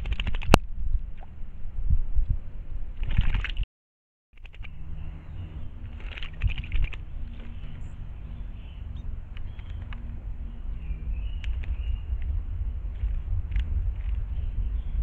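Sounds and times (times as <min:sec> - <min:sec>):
cluster of clicks: 0:00.0 - 0:00.6, 0:04.4 - 0:04.8, 0:05.8 - 0:07.8, 0:08.9 - 0:10.2, 0:11.4 - 0:14.3
steady low rumble: 0:00.0 - 0:03.4, 0:04.4 - 0:15.0
faint bird chirps: 0:04.4 - 0:13.3.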